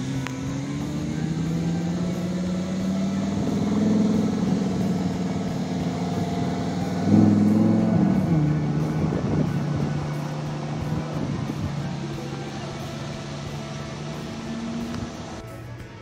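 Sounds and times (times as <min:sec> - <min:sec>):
car engine rolling past: 0:00.0 - 0:15.4.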